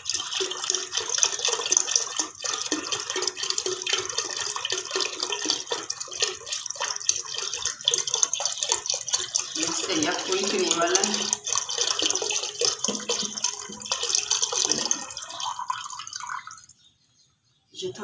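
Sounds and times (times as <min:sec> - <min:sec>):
milk pouring into a pan: 0:00.0 - 0:16.8.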